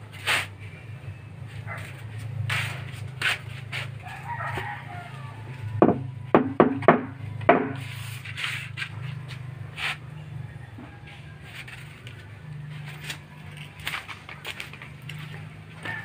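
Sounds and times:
rooster crowing faintly: 3.8 - 6.2, 9.8 - 13.2, 15.7 - 16.0
hollow wooden knocks: 5.8 - 7.8.

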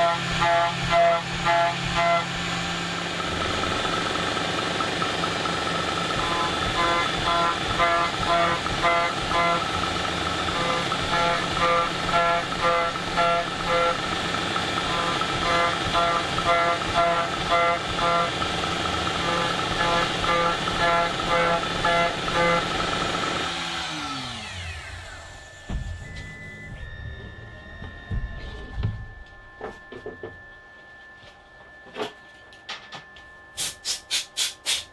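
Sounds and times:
milling machine cutting steel: 0.0 - 26.1
spindle winding down whine: 0.0 - 34.9.

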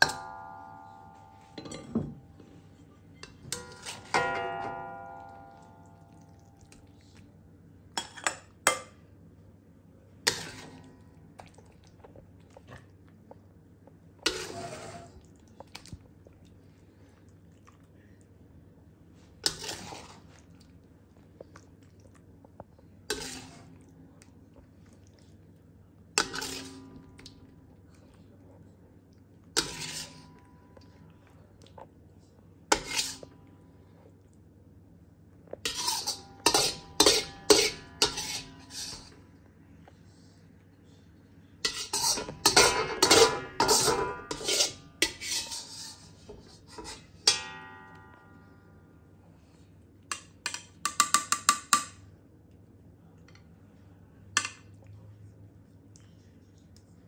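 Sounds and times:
low steady hum: 0.0 - 57.0
metal spatula scraping a wok: 10.3 - 10.8, 14.2 - 15.2, 19.4 - 20.2, 23.1 - 23.7, 26.2 - 26.9, 29.6 - 30.4, 32.7 - 33.3, 35.6 - 39.2, 41.6 - 47.4.

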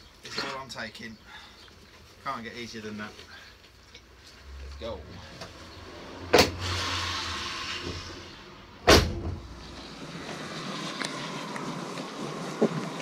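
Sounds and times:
van doors slamming shut: 8.8 - 9.6
vehicle driving on wet road: 9.5 - 13.0.

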